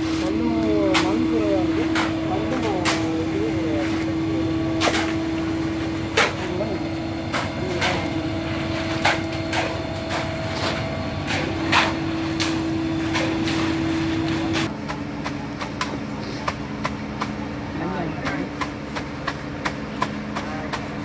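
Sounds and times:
shovels scraping wet concrete: 0.0s - 16.6s
concrete mixer truck humming: 0.0s - 21.0s.

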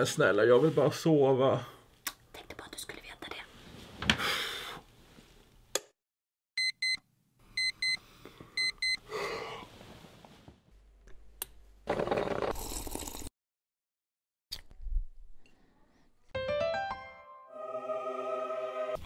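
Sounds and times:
alarm clock beeping: 6.6s - 7.0s, 7.6s - 8.0s, 8.6s - 9.0s.

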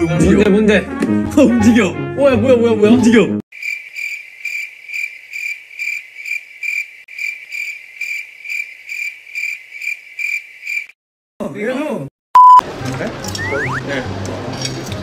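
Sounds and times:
cricket chirping: 3.5s - 11.0s.

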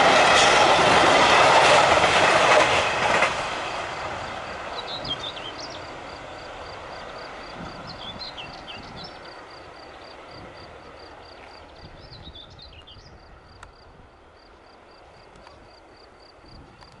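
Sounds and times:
freight train rumbling: 0.0s - 17.0s
birds chirping: 4.4s - 13.2s.

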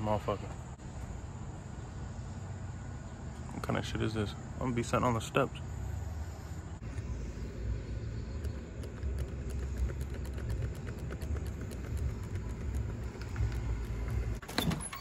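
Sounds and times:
low outdoor rumble: 0.0s - 14.4s
faint quick ticking: 6.8s - 14.4s.

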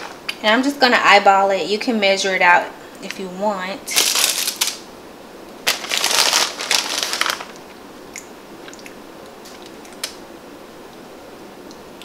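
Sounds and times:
plastic bag crinkling: 3.9s - 4.8s, 5.6s - 7.8s.

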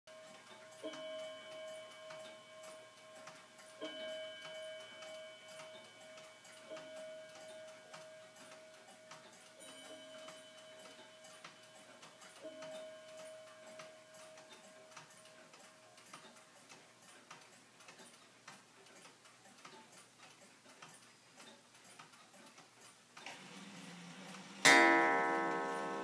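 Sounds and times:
clock striking ringing strokes: 0.1s - 16.0s, 24.6s - 26.0s
wall clock ticking: 0.1s - 26.0s.

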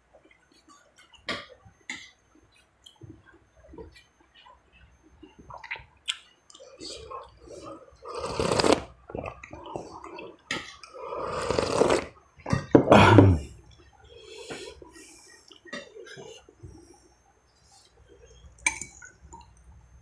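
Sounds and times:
slurping broth off bone: 8.1s - 8.9s, 11.0s - 12.2s.

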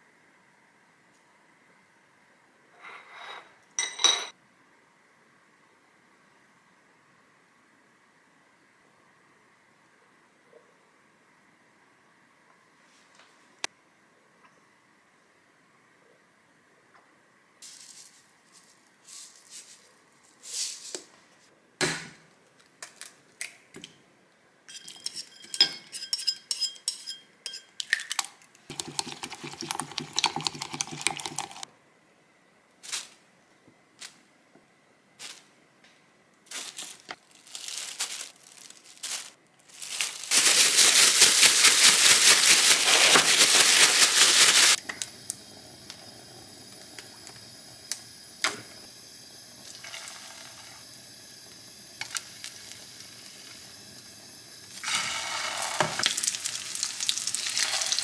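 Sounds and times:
faint steady hiss: 0.0s - 25.2s, 27.2s - 58.0s
dishes and utensils clinking: 2.9s - 4.4s, 24.7s - 27.8s
crinkling: 36.5s - 44.8s.

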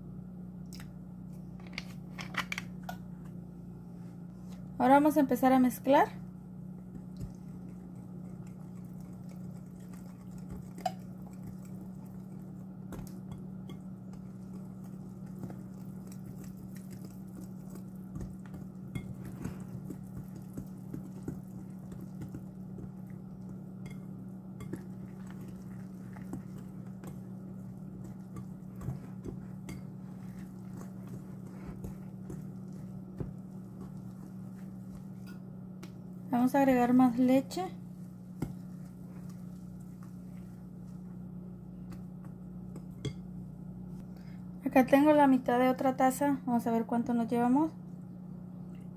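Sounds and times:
low hum: 0.0s - 48.9s.

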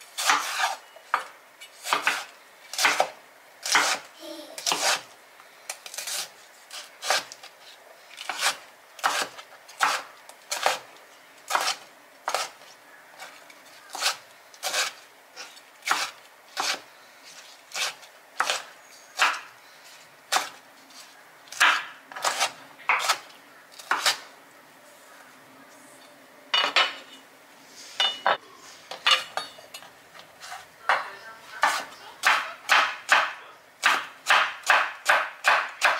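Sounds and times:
knife chopping on cutting board: 1.9s - 4.0s, 4.6s - 5.0s, 8.3s - 10.8s, 15.9s - 16.8s, 21.6s - 23.2s, 31.6s - 35.9s.

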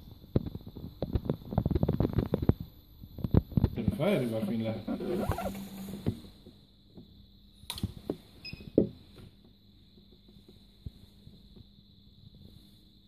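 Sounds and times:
faint electrical hum: 0.0s - 13.0s
high machinery whine: 3.8s - 6.4s.

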